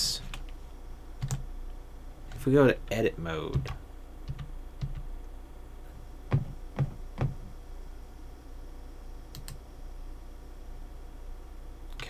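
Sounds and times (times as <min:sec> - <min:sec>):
low steady background hum: 0:00.0 - 0:12.0.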